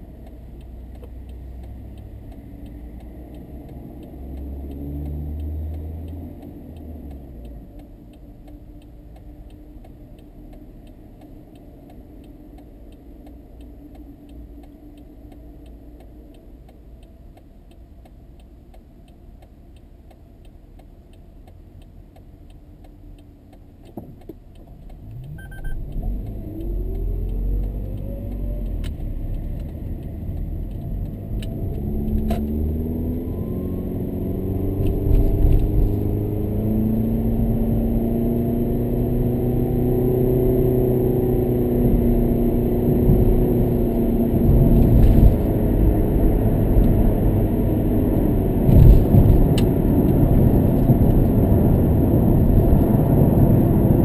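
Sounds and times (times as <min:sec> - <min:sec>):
road rumble: 0:00.0 - 0:54.0
car whine rising in pitch: 0:25.0 - 0:54.0.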